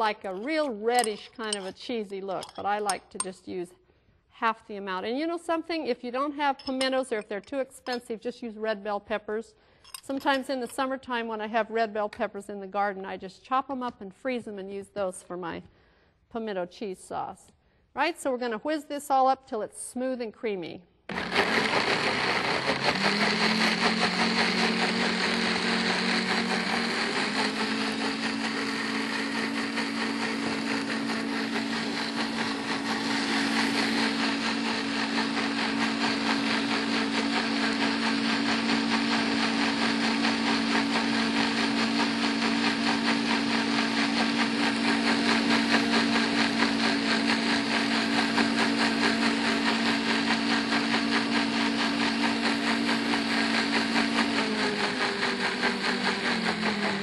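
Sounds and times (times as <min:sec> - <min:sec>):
blender motor running: 0:21.1 - 0:57.0.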